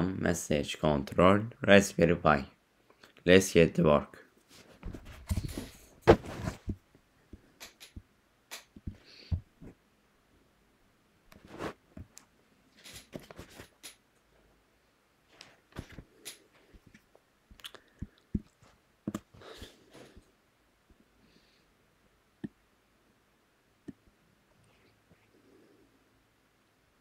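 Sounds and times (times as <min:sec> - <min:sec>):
soft rustles: 0:04.4 - 0:06.8, 0:11.3 - 0:12.1, 0:12.7 - 0:13.8.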